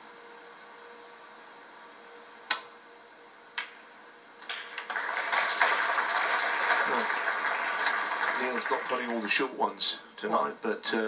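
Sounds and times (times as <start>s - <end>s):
snooker balls clicking: 3.6s - 3.8s, 4.4s - 5.6s
audience applause: 4.4s - 9.6s.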